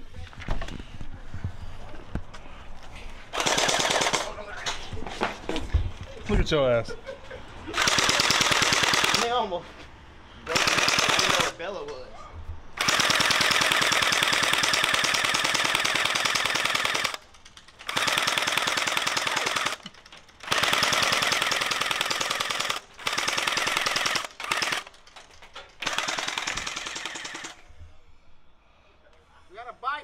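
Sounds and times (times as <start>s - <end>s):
toy gun firing full-auto: 3.4s - 4.4s, 7.8s - 9.4s, 10.5s - 11.6s, 12.8s - 19.8s, 20.4s - 25.0s, 25.8s - 27.6s.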